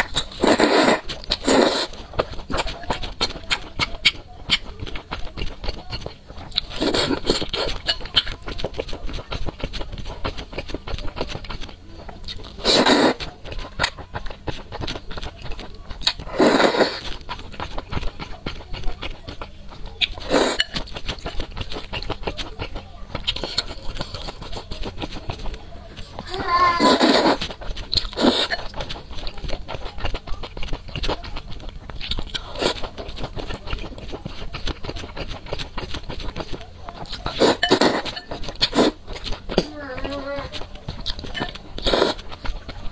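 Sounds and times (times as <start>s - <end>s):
noodle slurp: 0.0s - 3.0s, 6.4s - 8.0s, 12.4s - 14.3s, 16.0s - 18.1s, 26.8s - 31.2s, 37.1s - 39.7s, 41.8s - 42.4s
noodles slurped: 0.0s - 42.9s
wet chewing and mouth clicks: 0.0s - 42.9s.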